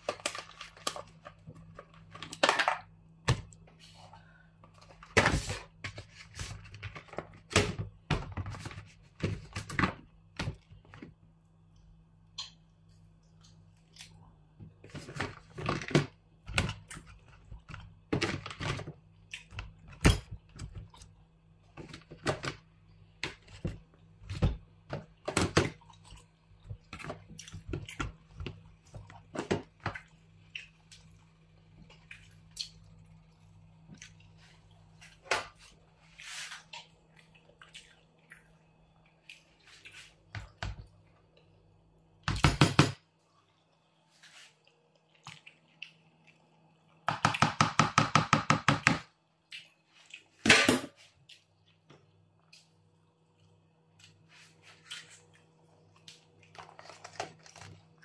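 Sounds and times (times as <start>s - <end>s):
wet squishes of food: 10.1s - 18.1s, 18.9s - 42.0s, 43.1s - 47.1s, 49.2s - 50.4s, 51.0s - 58.0s.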